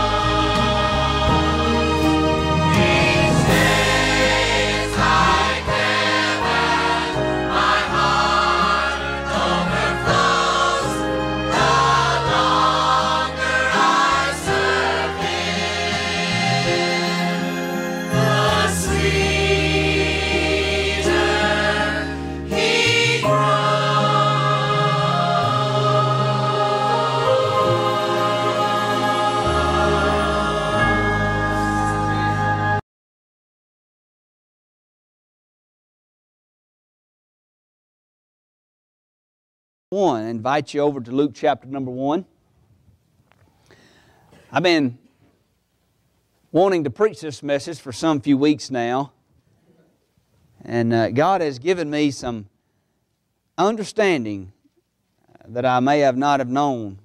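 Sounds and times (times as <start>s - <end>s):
choir singing a hymn: 0.0s - 32.8s.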